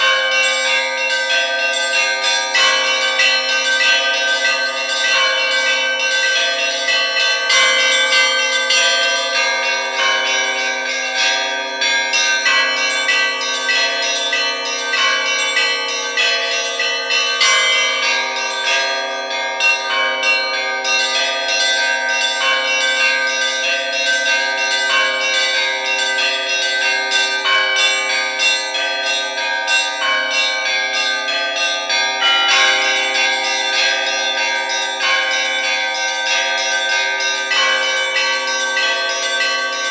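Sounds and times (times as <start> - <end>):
large church bells ringing: 0.0 - 39.9
small church bells struck quickly: 0.0 - 39.9.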